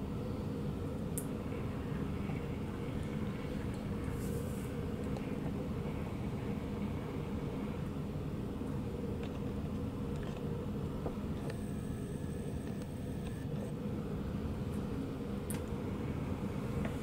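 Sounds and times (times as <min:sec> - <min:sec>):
turntable motor humming: 0:01.2 - 0:17.0.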